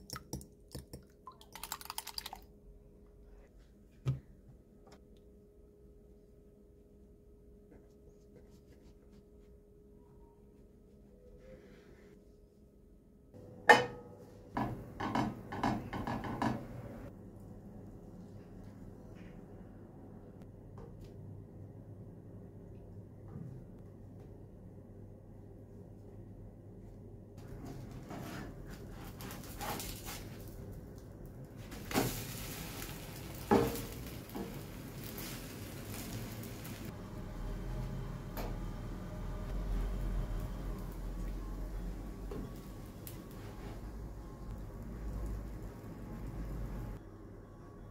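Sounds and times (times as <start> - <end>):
egg and bread sizzling in pan: 31.6 - 36.9.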